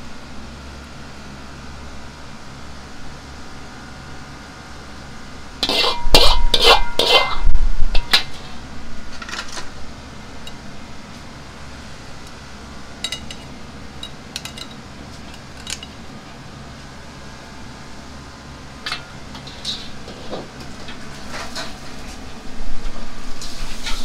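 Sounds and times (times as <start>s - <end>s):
metal ladle scraping a wok: 5.6s - 8.6s, 19.4s - 20.3s.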